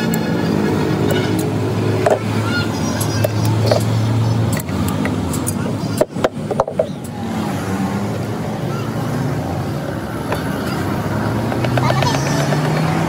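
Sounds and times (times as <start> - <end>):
engine running: 0.0 - 13.0
sharp metallic clicks: 2.9 - 7.2.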